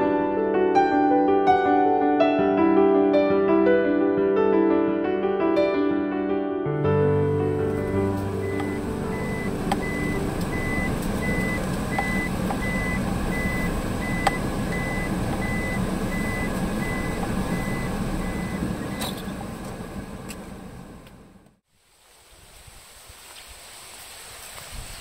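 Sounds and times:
car engine running: 7.2 - 21.6
reverse warning beeper: 7.7 - 19.4.

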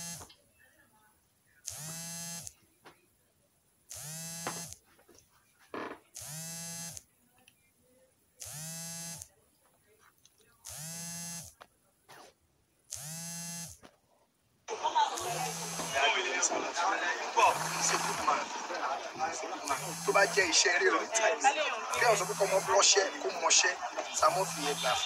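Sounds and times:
small motor buzzing: 0.0 - 0.3, 1.7 - 2.6, 3.9 - 4.8, 6.2 - 7.0, 8.4 - 9.3, 10.7 - 11.6, 12.9 - 13.8, 15.2 - 16.0, 19.6 - 20.6, 21.9 - 25.0.

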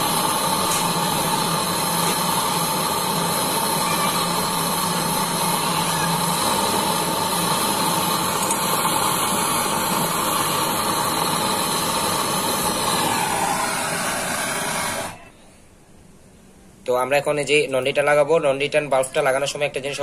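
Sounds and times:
torch flame hissing: 0.0 - 15.3.

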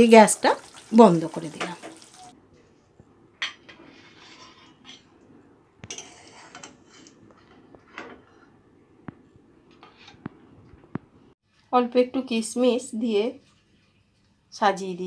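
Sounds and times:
metal spatula scraping steel bowl: 3.7 - 5.1, 5.9 - 7.2.

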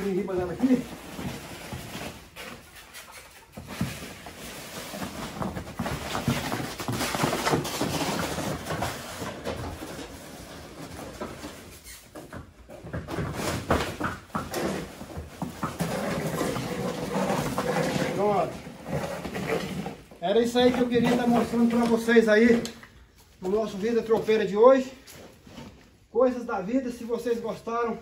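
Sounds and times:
plastic sacks dragged on concrete: 0.0 - 12.0, 13.2 - 22.8
hooves knocking on concrete: 0.0 - 25.9.

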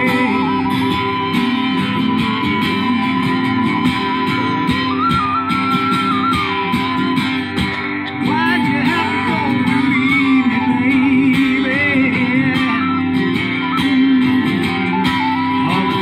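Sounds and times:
acoustic guitar picking: 0.0 - 16.0
flute playing slow melody: 0.0 - 16.0.

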